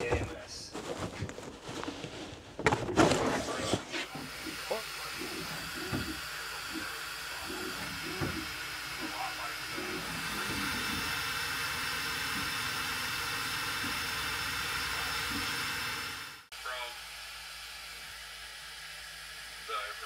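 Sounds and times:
printer fan hiss: 3.9s - 20.0s
motor tones: 4.0s - 20.0s.

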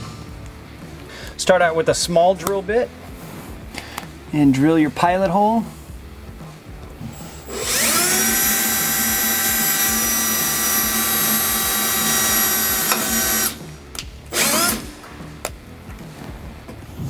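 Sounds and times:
drill whining into metal: 7.2s - 13.6s, 14.3s - 15.0s.

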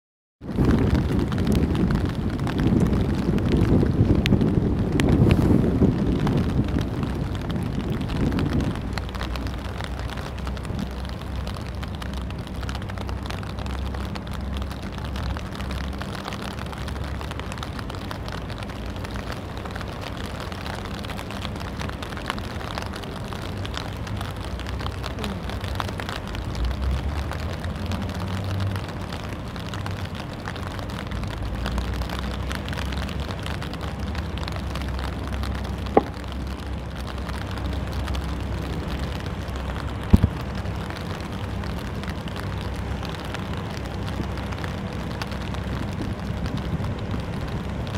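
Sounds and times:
low rumble: 0.4s - 21.2s
wind noise: 0.4s - 22.6s, 32.3s - 47.9s
steady rain: 0.4s - 47.9s
sharp knocks: 36.0s - 36.2s.

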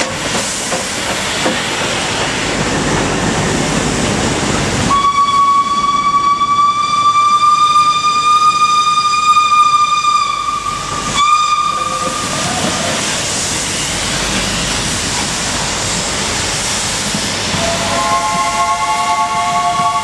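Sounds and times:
multi-tone train horn: 4.9s - 12.7s, 17.5s - 20.0s
steam locomotive whistle: 4.9s - 13.2s, 17.5s - 20.0s
steady hiss of passing coaches: 12.1s - 18.6s.

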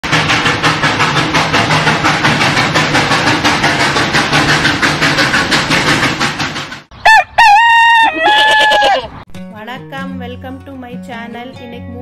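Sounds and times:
steam locomotive chuffing: 0.0s - 7.0s.

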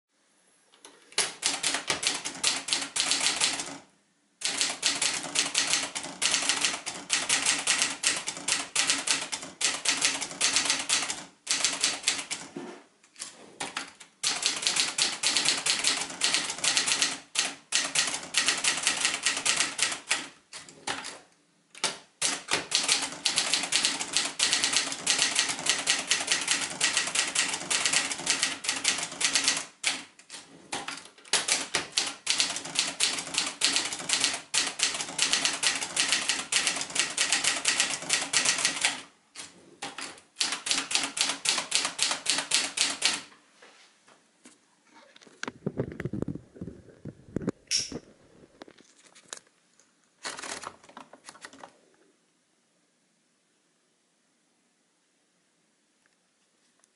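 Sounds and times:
manual typewriter typing: 1.2s - 3.8s, 4.4s - 12.6s, 13.2s - 21.2s, 21.8s - 43.3s, 50.2s - 51.8s.

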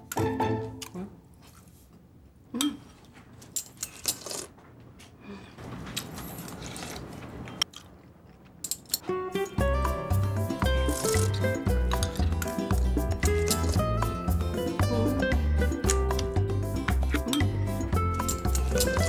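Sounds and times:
metal spoon clinking: 17.2s - 19.0s.

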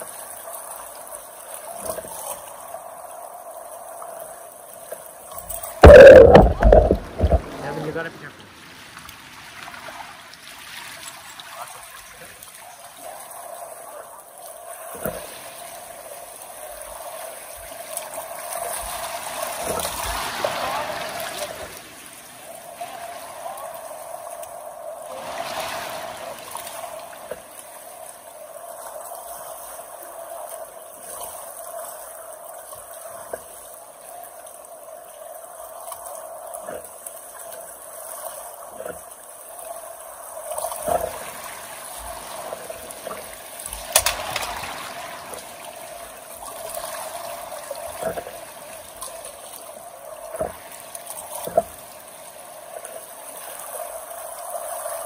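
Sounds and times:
river water flowing and rippling: 0.0s - 55.0s
short knocks: 5.8s - 7.5s.

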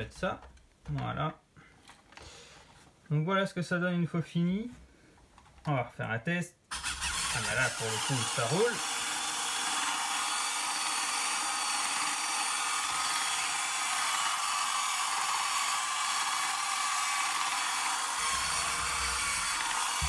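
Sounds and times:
small electric motors whirring: 6.7s - 20.0s.

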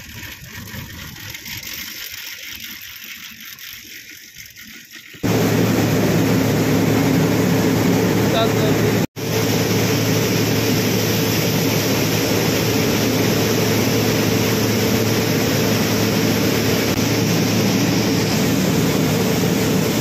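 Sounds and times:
mill machinery droning: 5.2s - 20.0s.

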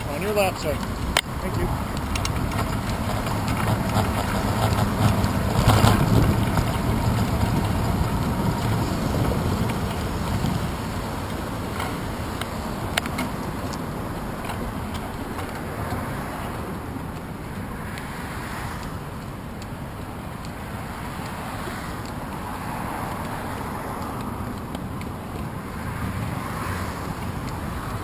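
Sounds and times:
wind buffeting microphone: 0.0s - 17.7s.

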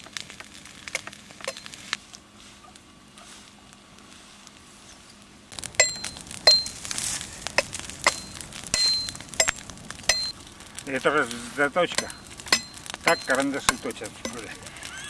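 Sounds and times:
sharp metallic clinks: 5.8s - 6.8s, 7.6s - 10.4s, 12.0s - 14.6s.

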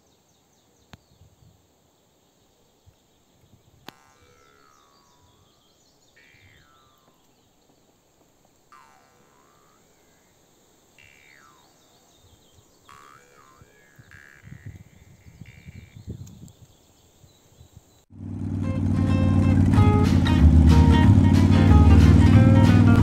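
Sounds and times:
birds twittering: 2.0s - 18.1s.

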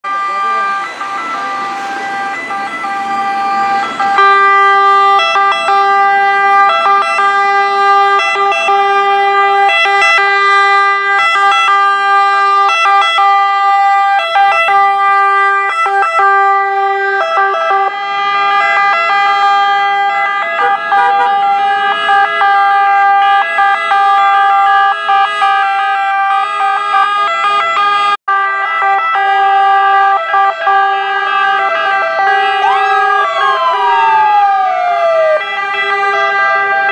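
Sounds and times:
ambulance sirens: 0.0s - 36.9s
road traffic: 0.0s - 36.9s.

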